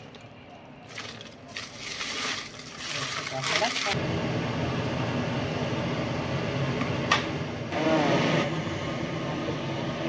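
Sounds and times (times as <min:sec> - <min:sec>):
steady machine hum: 0:04.0 - 0:10.0.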